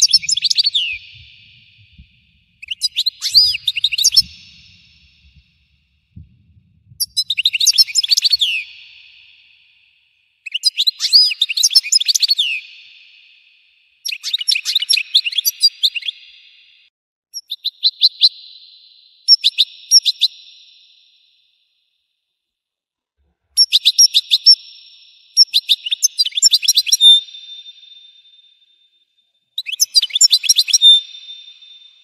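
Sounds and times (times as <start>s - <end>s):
bird twittering chirps and trills: 0.0s - 9.6s, 29.6s - 32.0s.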